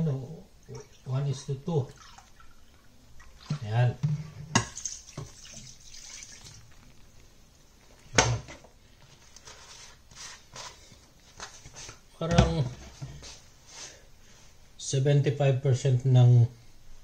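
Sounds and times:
liquid pouring and splashing: 0:00.5 - 0:07.2.

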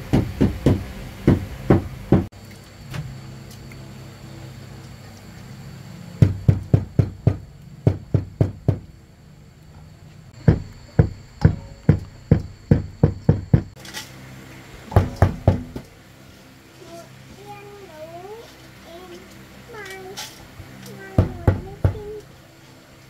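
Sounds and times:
sharp knocks: 0:00.0 - 0:02.3, 0:06.2 - 0:08.9, 0:10.4 - 0:13.8, 0:14.9 - 0:15.9.

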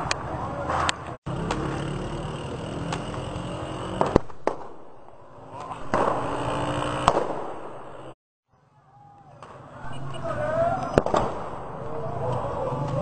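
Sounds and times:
fireworks bangs: 0:04.0 - 0:06.4, 0:07.0 - 0:07.9, 0:09.4 - 0:11.8.

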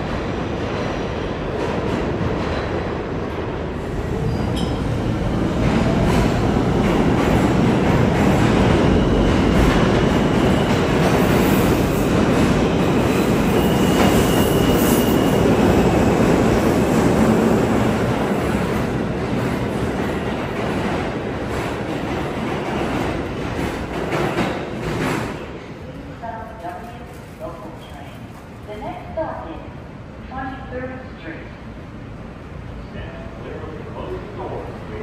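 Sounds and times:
subway train wheels rumbling: 0:00.0 - 0:35.0
high-pitched brake squeal: 0:04.3 - 0:04.8, 0:13.5 - 0:15.6.

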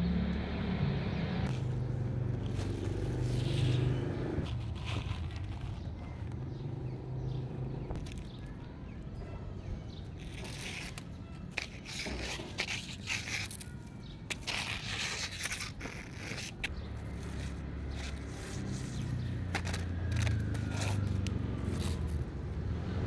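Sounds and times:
rustling and scraping: 0:01.5 - 0:06.6, 0:09.9 - 0:22.4.

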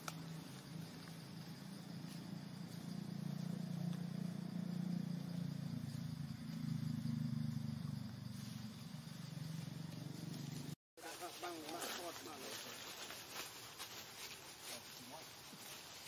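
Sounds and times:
low engine hum: 0:00.0 - 0:10.8
faint insect drone: 0:00.0 - 0:16.0.

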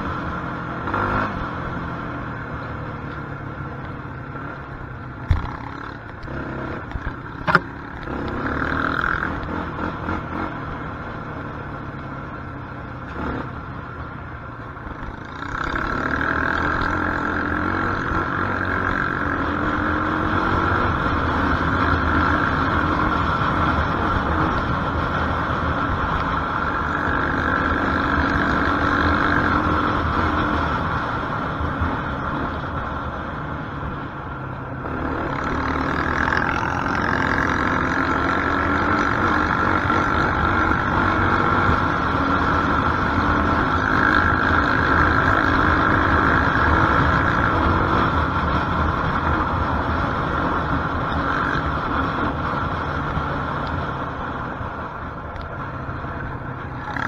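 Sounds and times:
quad bike engine revving: 0:00.0 - 0:01.8, 0:05.3 - 0:11.2, 0:13.0 - 0:13.6, 0:15.0 - 0:32.6, 0:34.8 - 0:54.2, 0:56.7 - 0:57.0.

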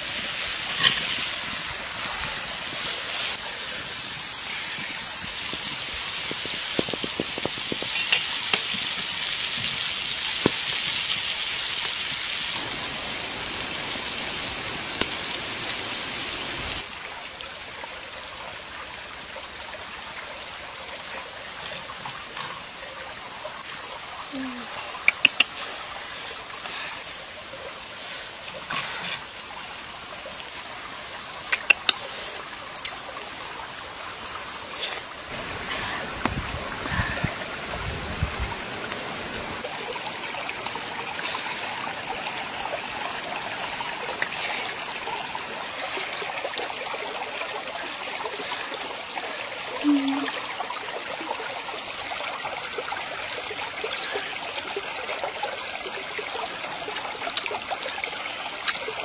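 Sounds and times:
stream trickling over rocks: 0:00.0 - 0:59.0
sharp clicks: 0:25.0 - 0:25.5, 0:31.5 - 0:32.1.

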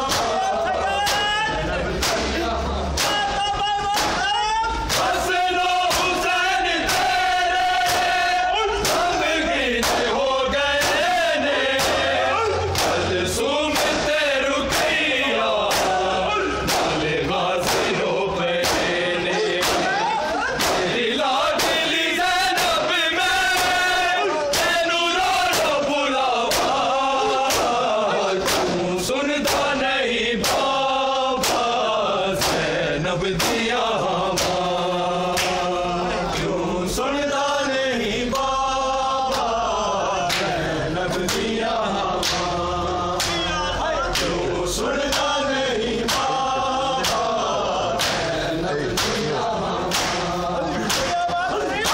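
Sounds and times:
men chanting a lament: 0:00.0 - 0:51.9
palms striking bare chests: 0:02.0 - 0:05.2, 0:13.7 - 0:21.0.

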